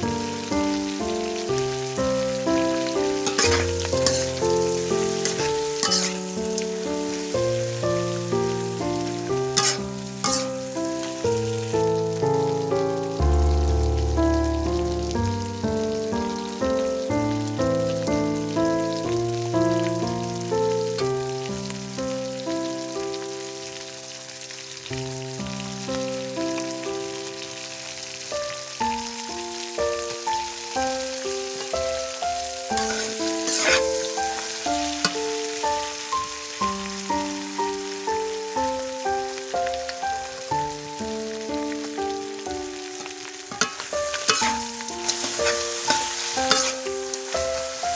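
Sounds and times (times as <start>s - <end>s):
food sizzling in a wok: 0.0s - 47.9s
metal spatula scraping pan: 3.2s - 4.4s, 5.1s - 6.3s, 9.6s - 10.6s, 32.8s - 34.2s, 43.5s - 46.8s.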